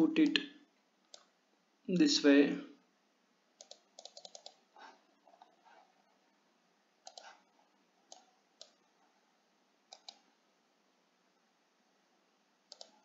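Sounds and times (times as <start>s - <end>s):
computer mouse clicks: 1.0s - 1.4s, 3.6s - 5.7s, 7.0s - 7.5s, 8.1s - 8.8s, 9.9s - 10.3s, 12.7s - 13.0s.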